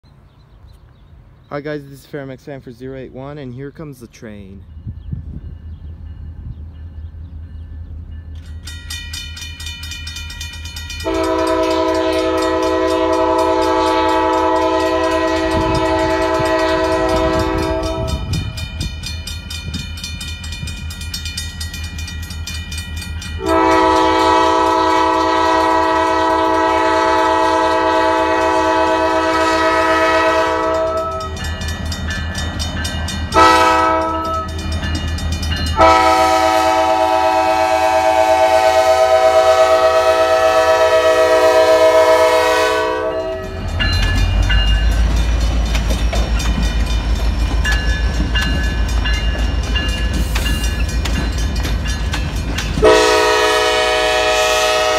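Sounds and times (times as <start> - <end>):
crossing bells clanging: 3.5 - 54.9
locomotive air horn blasts: 11.0 - 18.4, 23.4 - 31.4, 33.3 - 34.5, 35.8 - 43.6, 52.8 - 54.9.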